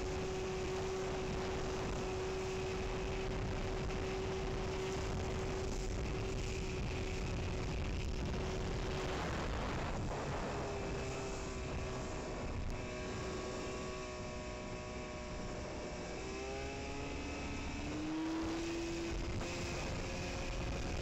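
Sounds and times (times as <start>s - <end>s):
rush of wind and water: 0.0s - 16.5s
speedboat engine running: 0.0s - 21.0s.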